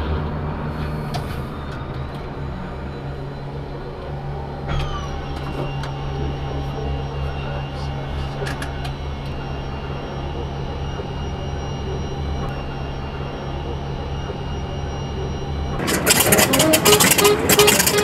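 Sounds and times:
radial engine running: 0.8 - 18.0
radial engine starter turning over: 15.8 - 18.0.

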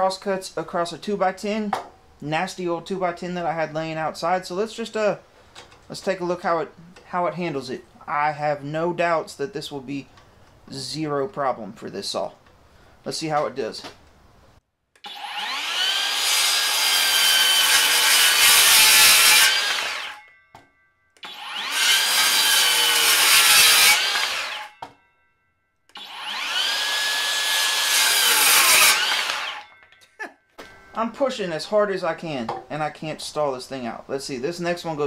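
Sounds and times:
circular saw motor whining: 15.0 - 20.2, 21.2 - 24.7, 25.9 - 29.7
saw blade cutting wood: 15.0 - 20.2, 21.2 - 25.0, 25.9 - 29.8.

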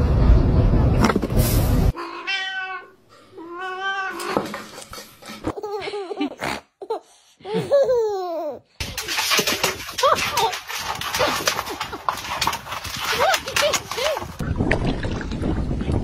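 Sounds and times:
cat meowing: 1.9 - 4.4.

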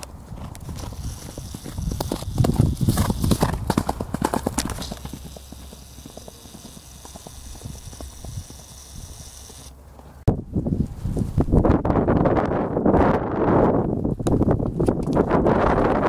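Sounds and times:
horse hoofbeats on asphalt: 0.0 - 10.2.

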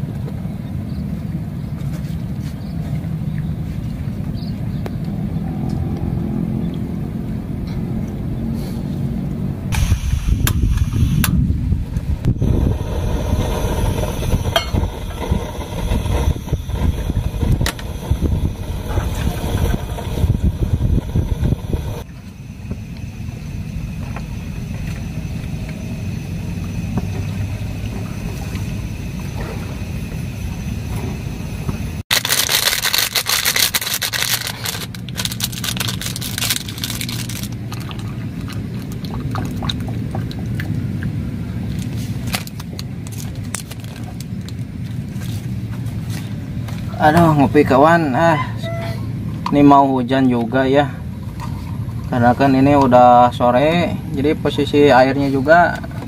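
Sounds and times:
low outdoor rumble: 0.0 - 56.0
camp stove hissing: 9.7 - 37.6.

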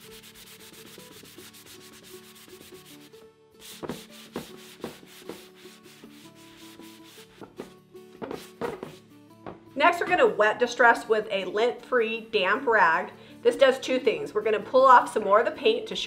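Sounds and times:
sanding sponge rubbing painted wood: 0.0 - 9.0.

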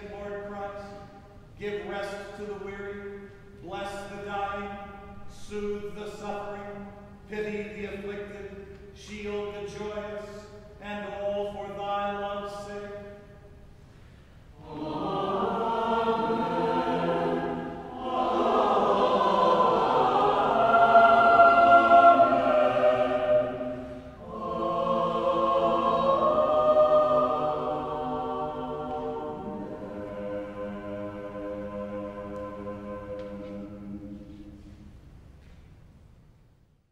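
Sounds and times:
choir singing sustained chords: 9.2 - 35.3.

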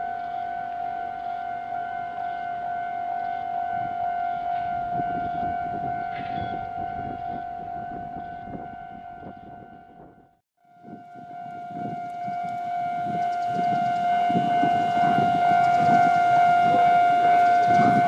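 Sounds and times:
high-pitched steady tone: 10.7 - 18.0
tram wheels rumbling and knocking: 11.8 - 18.0.

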